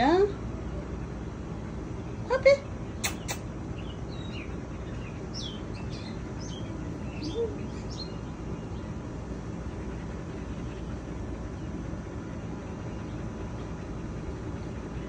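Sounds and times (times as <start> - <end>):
outdoor background noise: 0.0 - 15.0
small birds chirping: 0.0 - 15.0
sharp clicks: 3.0 - 3.4.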